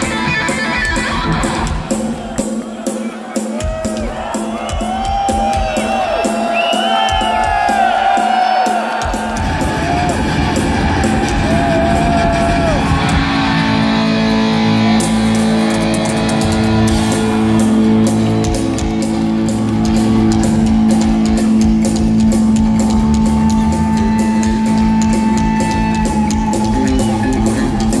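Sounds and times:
drums: 0.0 - 28.0
heavy metal band playing: 0.0 - 28.0.

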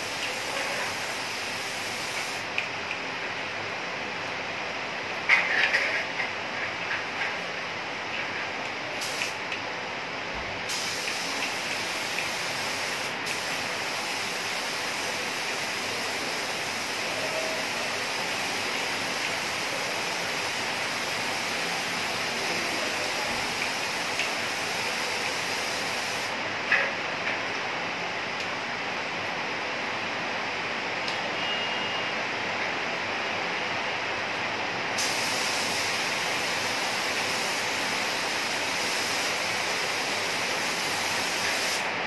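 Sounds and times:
paint spray gun hissing: 0.0 - 2.5, 9.0 - 9.4, 10.7 - 17.2, 17.9 - 26.4, 35.0 - 41.9
steady lower hiss: 0.0 - 31.4, 32.1 - 42.0.

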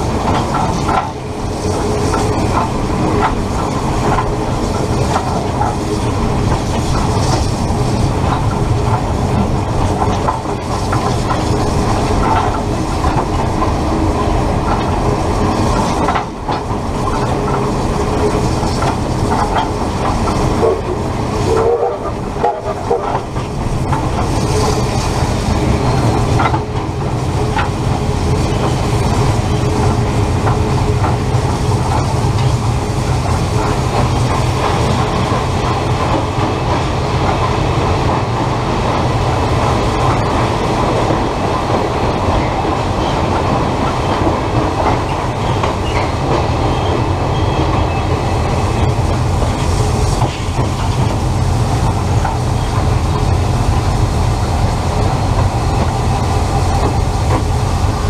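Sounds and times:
train rumbling on rails: 0.0 - 58.0
wheels clicking over rail joints: 0.0 - 58.0.

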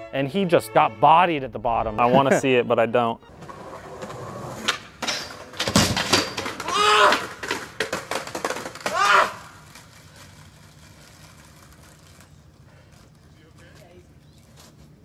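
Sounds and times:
skateboard and body hitting concrete: 3.3 - 12.1
person crying out in pain: 6.6 - 7.2.

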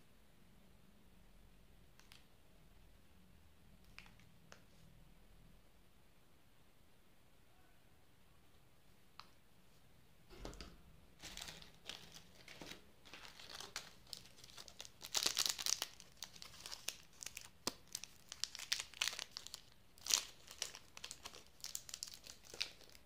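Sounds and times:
plastic wrappers crinkling: 11.2 - 23.0
wrapper tearing open: 11.2 - 23.0.

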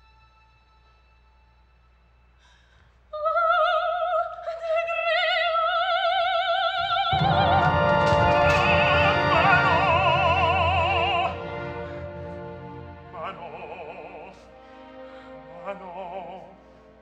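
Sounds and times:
operatic voice singing high note: 7.1 - 14.5
orchestra playing: 7.1 - 17.0.

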